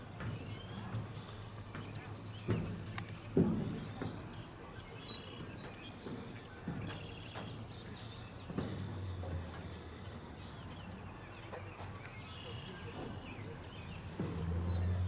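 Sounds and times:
soft knocks: 0.2 - 9.8.

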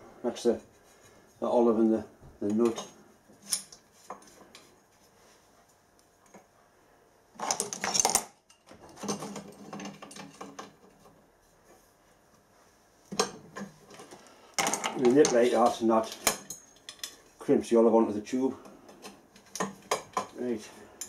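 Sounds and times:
metal pipe clinking and rattling: 7.4 - 11.0.

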